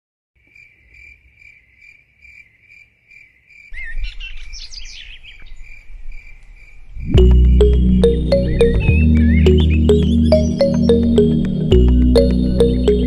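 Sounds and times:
cricket chirping: 0:00.4 - 0:07.6
birds chirping: 0:03.8 - 0:13.0.

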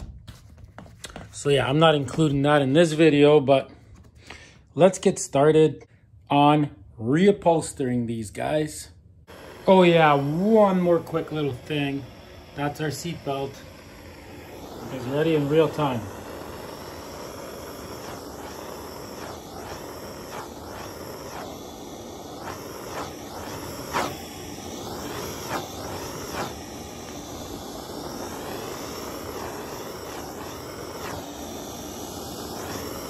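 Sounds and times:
gas torch hissing: 0:09.2 - 0:33.0.

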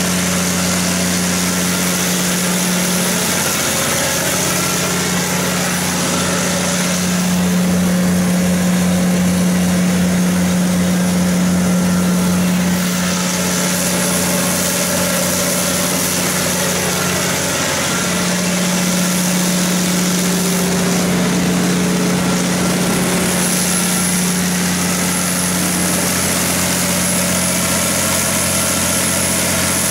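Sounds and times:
diesel generator engine running: 0:00.0 - 0:29.9.

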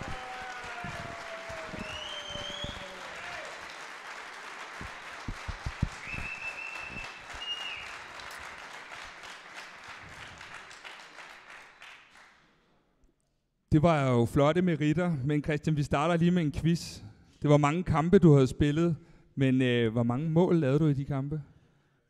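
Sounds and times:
audience applauding: 0:00.0 - 0:12.4.

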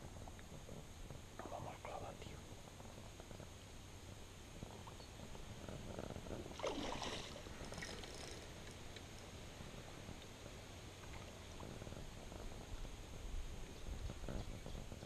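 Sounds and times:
wind rumble: 0:02.4 - 0:15.0
river water splashing: 0:06.5 - 0:08.6.

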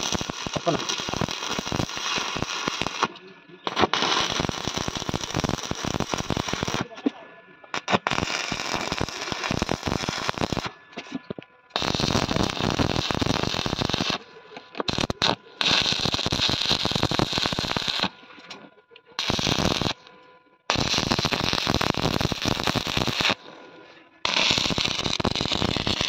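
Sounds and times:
welding arc crackling: 0:00.0 - 0:07.0, 0:07.7 - 0:10.7, 0:11.7 - 0:18.2, 0:19.2 - 0:20.1, 0:20.7 - 0:23.6, 0:24.2 - 0:26.0.

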